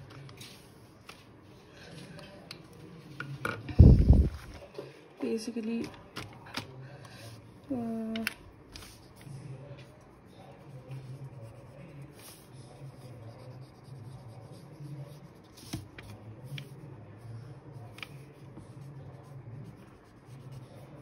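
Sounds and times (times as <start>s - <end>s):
pen scratching on paper: 9.9s - 21.0s.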